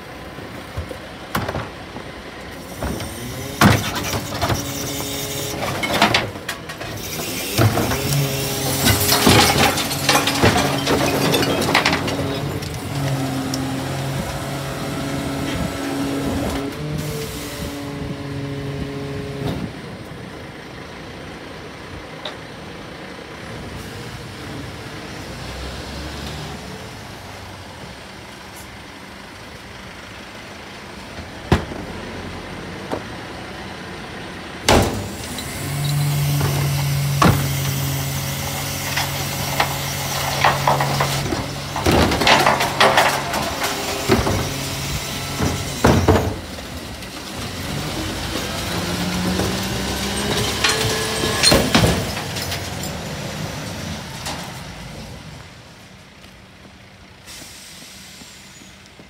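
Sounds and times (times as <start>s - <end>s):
garbage truck engine running: 0.0s - 25.4s, 26.6s - 59.0s
hydraulics humming: 0.2s - 21.1s, 34.5s - 59.0s
compactor clattering and knocking: 5.6s - 13.1s, 38.6s - 46.6s.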